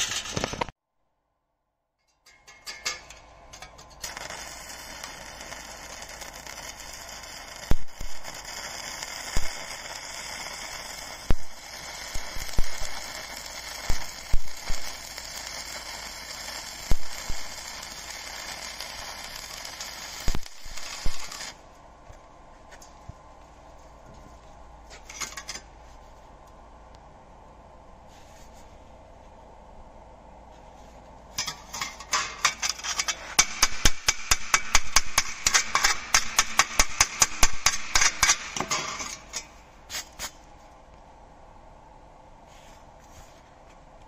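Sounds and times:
welding arc hissing and popping: 0.0 - 0.8, 3.6 - 21.7, 31.4 - 40.4.

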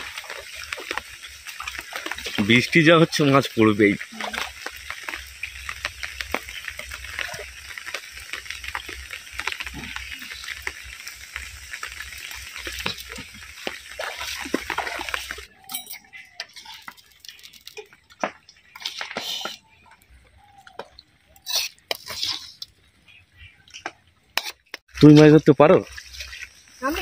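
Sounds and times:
heavy rain: 0.0 - 15.6, 26.8 - 27.0
scattered clicks and drips: 0.0 - 27.0.

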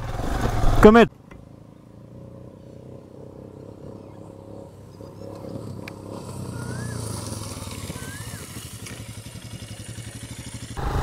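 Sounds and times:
motorcycle engine approaching: 0.0 - 11.0
bird chirping: 3.6 - 8.7.

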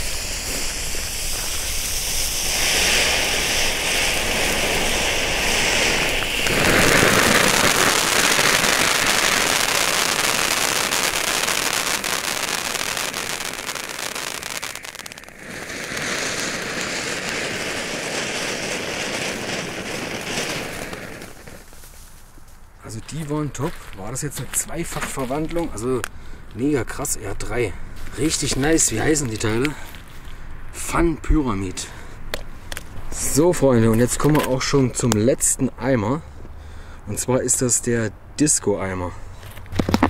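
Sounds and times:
firework fountains hissing and crackling: 0.0 - 22.1, 28.1 - 30.1, 39.7 - 40.0.

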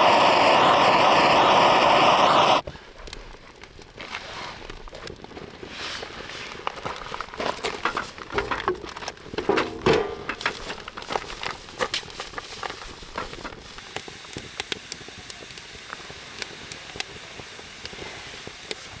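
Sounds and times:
campfire crackling and popping: 0.0 - 19.0.

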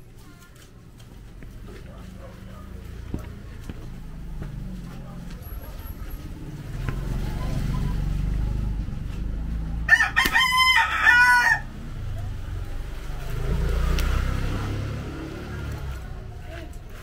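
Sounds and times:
rooster crowing: 9.9 - 11.8.

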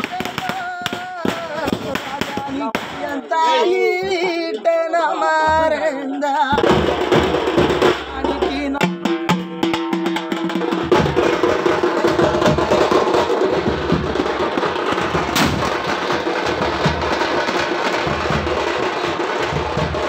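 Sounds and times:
frame drums beaten fast: 0.0 - 4.2, 5.4 - 20.0
sharp crack: 14.9 - 16.5.

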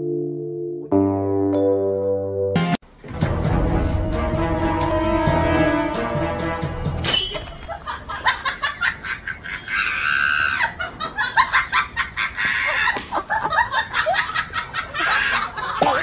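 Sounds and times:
background music: 0.0 - 7.7.

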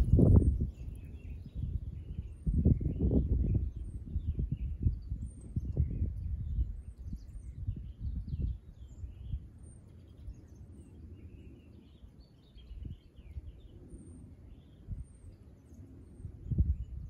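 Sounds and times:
low rumbling noise: 0.0 - 0.7
songbirds chirping: 0.0 - 17.0.

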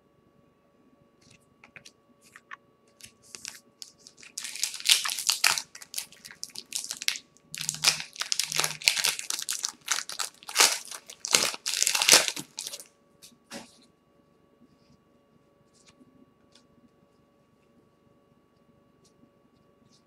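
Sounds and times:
foil wrapper crinkling and tearing: 2.4 - 12.9.

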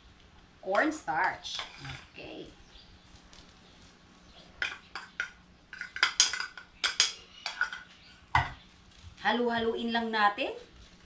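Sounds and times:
spoon clinking against a bowl: 4.6 - 7.9.

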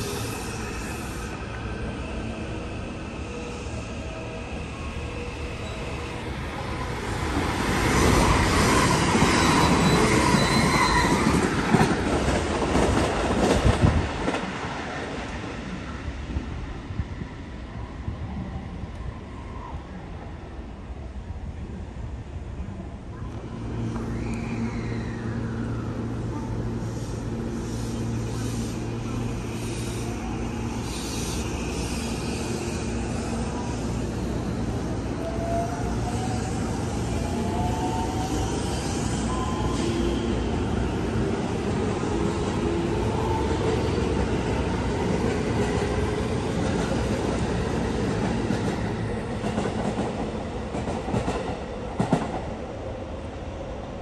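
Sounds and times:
train wheels rumbling on rail: 4.5 - 17.6, 23.0 - 54.0
faint high wheel squeal: 9.4 - 11.3, 37.5 - 40.4.

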